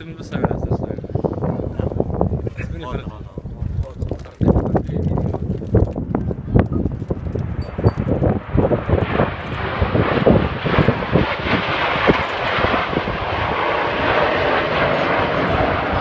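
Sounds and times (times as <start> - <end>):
crackles and knocks: 3.6 - 9.6
jet aircraft passing overhead: 6.0 - 16.0.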